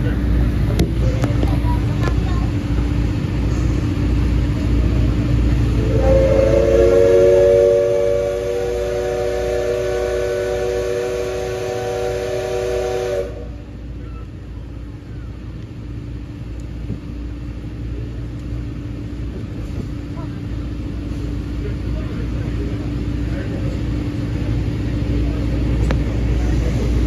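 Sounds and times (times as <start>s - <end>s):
low rumble of train running: 0.0s - 27.0s
steam locomotive whistle: 5.8s - 13.7s.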